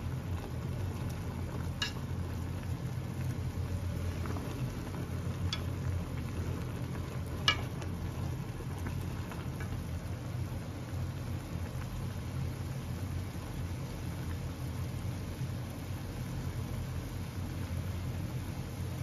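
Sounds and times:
broth boiling with low rumble: 0.0 - 19.0
chopsticks stirring noodles: 6.4 - 9.7.

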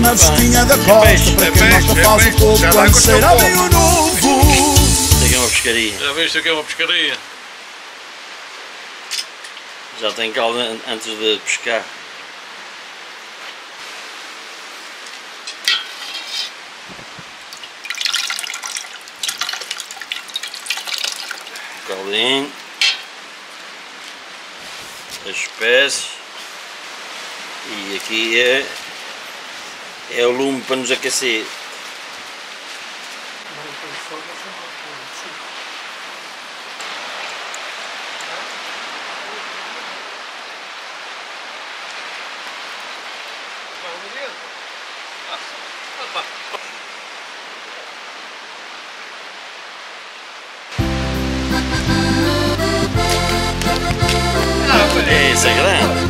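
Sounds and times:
metal ladle clinking: 15.5 - 16.6, 22.8 - 23.1
soup splashing and dripping: 17.4 - 21.9
surf breaking on rocky shore: 53.0 - 56.0.

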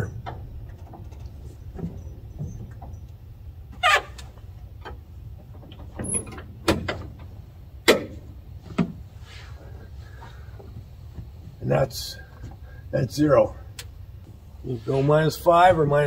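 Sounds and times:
flap handle clicks and clunks: 0.0 - 9.0
low steady rumble: 0.0 - 16.0.

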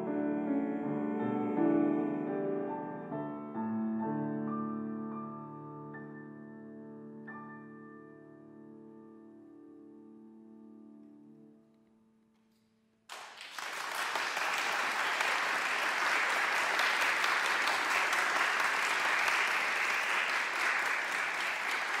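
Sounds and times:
audience applause: 13.1 - 22.0.

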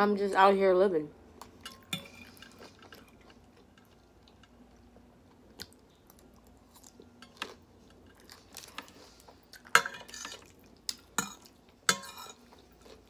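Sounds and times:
person chewing salad: 1.4 - 13.0
fork scraping a plate: 9.8 - 10.5.

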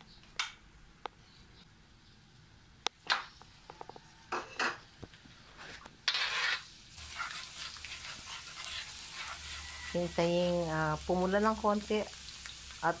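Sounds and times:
spatula scraping wok: 5.4 - 11.2
garlic sizzling in oil: 6.0 - 13.0.

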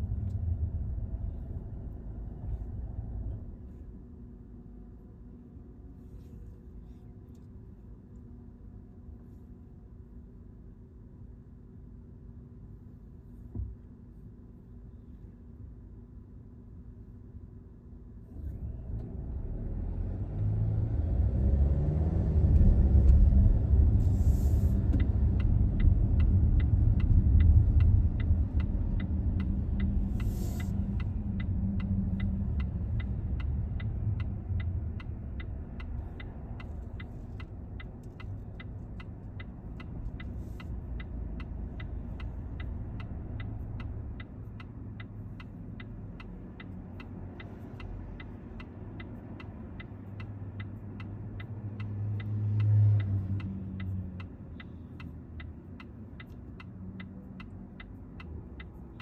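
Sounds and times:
car road and engine rumble: 0.0 - 59.0
turn signal clicking: 20.3 - 59.0.

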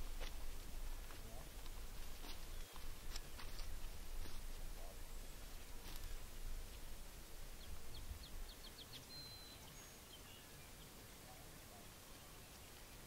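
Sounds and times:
songbird trilling: 7.6 - 11.8.

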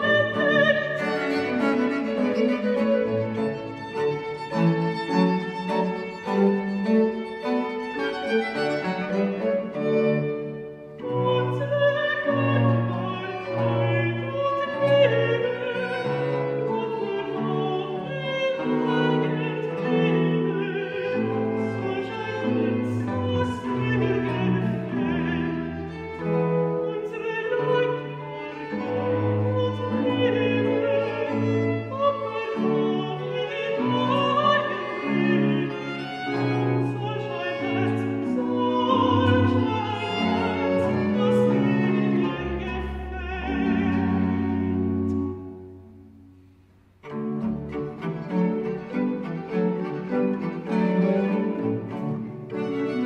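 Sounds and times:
violin: 0.0 - 53.0
countertenor singing: 11.0 - 45.0.

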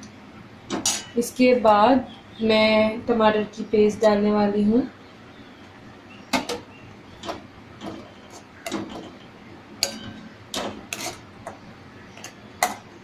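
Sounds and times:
spoon scraping metal wok: 9.8 - 11.3.

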